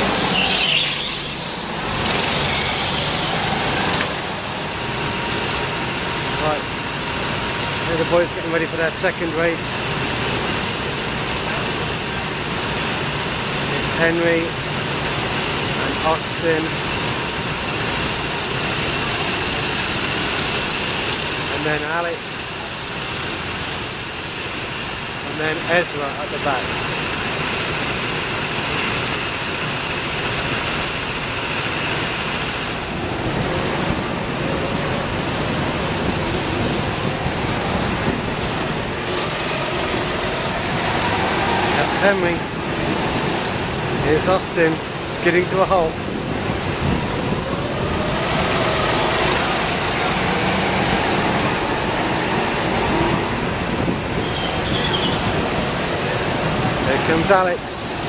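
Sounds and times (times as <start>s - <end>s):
go-kart engines running: 0.0s - 58.0s
high engine whine: 0.0s - 58.0s.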